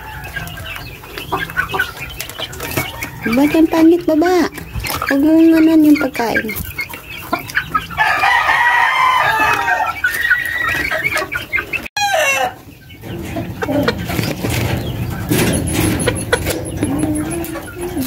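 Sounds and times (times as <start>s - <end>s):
rooster crowing: 0.0s - 0.7s, 8.0s - 10.8s, 12.0s - 12.6s
chickens clucking and squawking: 0.0s - 18.0s.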